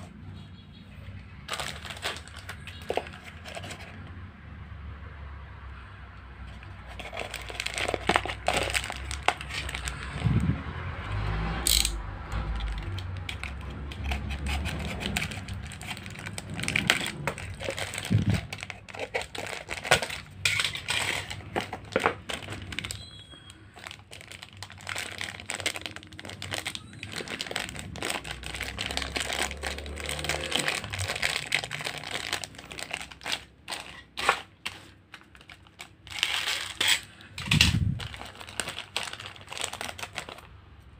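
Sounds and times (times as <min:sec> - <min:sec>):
plastic packets crinkling: 0:01.4 - 0:04.0, 0:06.5 - 0:10.4, 0:12.5 - 0:40.9.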